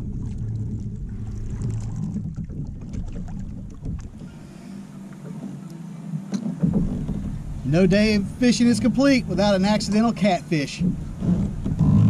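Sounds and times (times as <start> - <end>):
wind rumbling on microphone: 0.0 - 4.6, 6.3 - 9.8, 10.8 - 12.0
water lapping against hull: 0.0 - 12.0.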